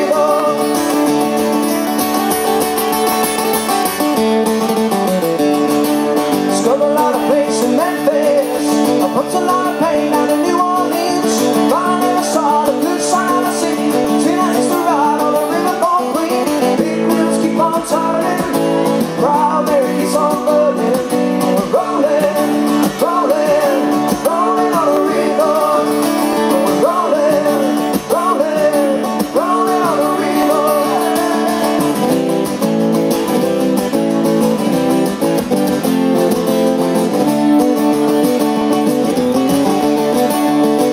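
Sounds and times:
man singing: 0.0s - 1.4s, 6.4s - 32.3s
acoustic guitars strummed: 0.0s - 40.9s.

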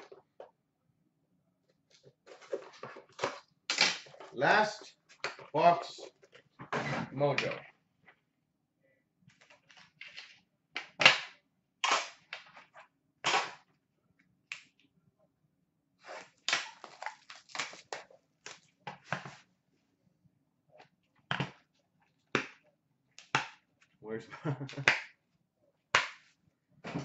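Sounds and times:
packaging rustling: 16.7s - 18.7s.

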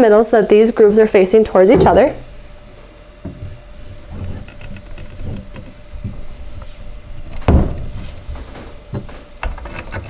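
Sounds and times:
heavy thump: 1.7s - 2.3s.

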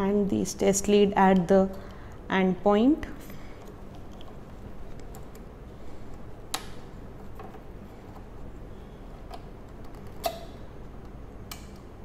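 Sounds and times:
low steady hum: 0.0s - 12.0s
connector clicks and handling: 9.2s - 12.0s.

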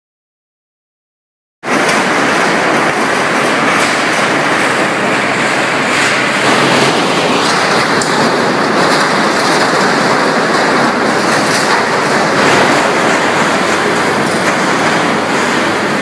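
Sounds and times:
excavator tearing sheet metal: 1.6s - 16.0s.

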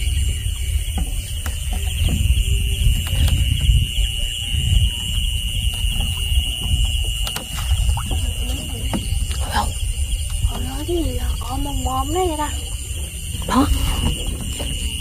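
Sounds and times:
night insects trilling: 0.0s - 15.0s.

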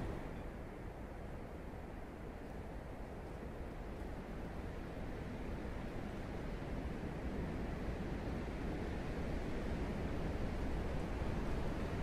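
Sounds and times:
wind blowing: 0.0s - 0.8s.

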